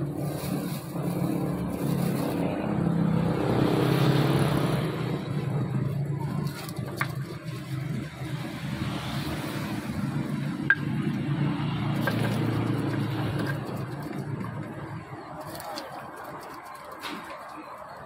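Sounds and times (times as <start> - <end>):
engine humming: 0.0 - 18.0
stone pestle mashing and scraping: 11.8 - 14.8.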